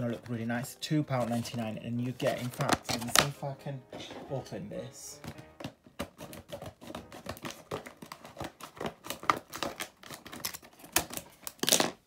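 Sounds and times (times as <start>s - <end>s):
packaging crinkling: 1.2s - 3.3s, 6.0s - 12.0s.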